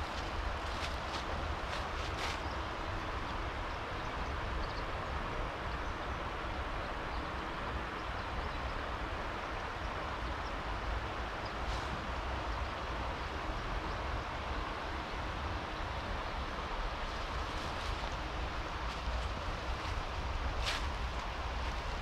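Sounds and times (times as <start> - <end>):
river flowing: 0.0 - 22.0.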